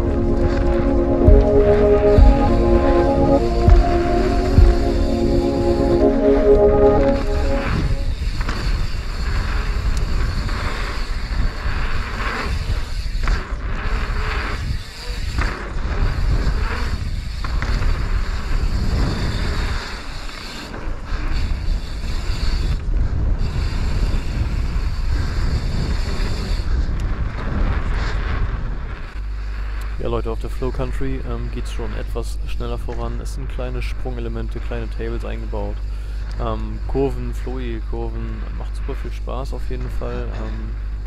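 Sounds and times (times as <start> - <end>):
rumble of bike tyres: 8.2 - 29.8.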